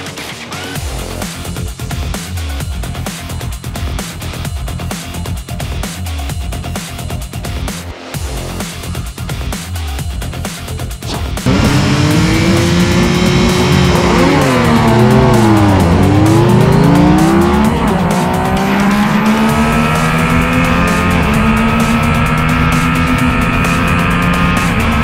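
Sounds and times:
background music with beat: 0.0 - 25.0
motorcycle engines revving: 11.4 - 25.0.

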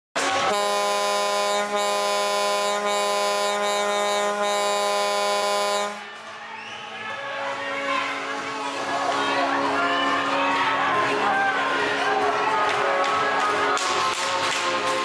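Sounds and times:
crowd noise: 0.2 - 15.0
arena horn blast: 0.3 - 6.1.

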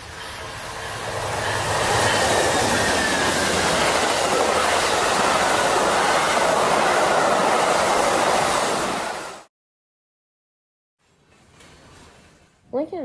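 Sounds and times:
train cars passing at speed: 0.0 - 9.5.

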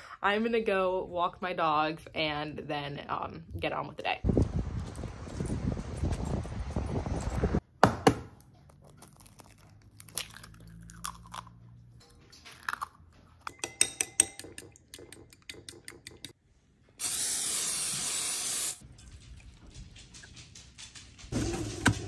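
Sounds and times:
aerosol cooking spray hissing: 17.0 - 18.8.

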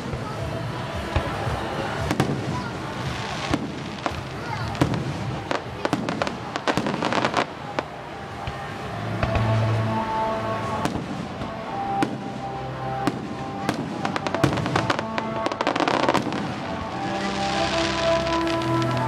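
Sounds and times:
background music: 0.0 - 19.0
fireworks bursting and crackling: 0.0 - 19.0.

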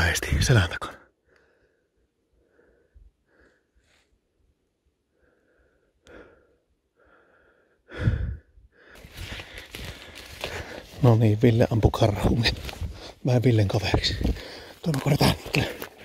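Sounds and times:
person breathing: 1.2 - 4.4, 5.0 - 11.0, 12.6 - 13.2, 14.2 - 14.8
rustling movement: 9.0 - 16.0.

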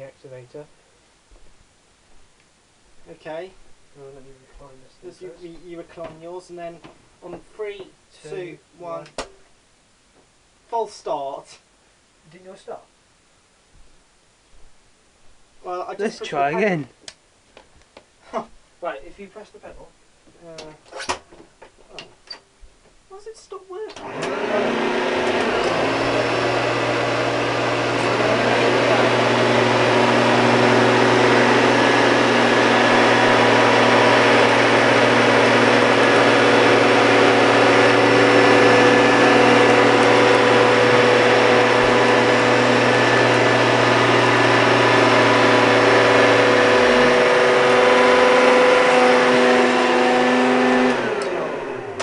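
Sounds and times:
vacuum cleaners whining: 24.0 - 52.0
vacuum motor winding down: 24.0 - 52.0.

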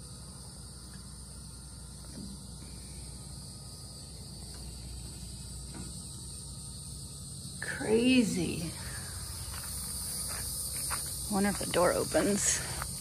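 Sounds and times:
insect chorus chirring: 0.0 - 13.0.

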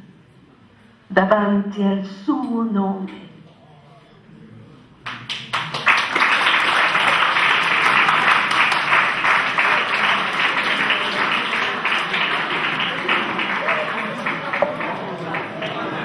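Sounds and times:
audience applauding: 5.1 - 16.0.

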